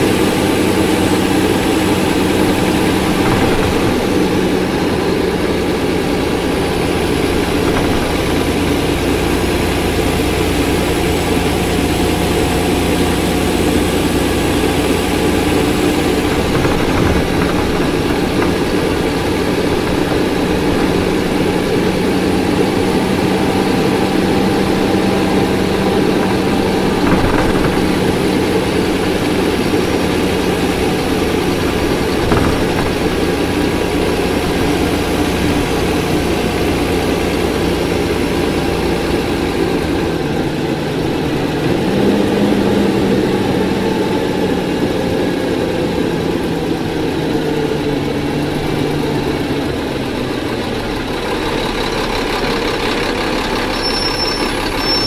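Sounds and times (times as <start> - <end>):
bus diesel engine running: 0.0 - 55.0
brief high-pitched squeal: 53.7 - 55.0.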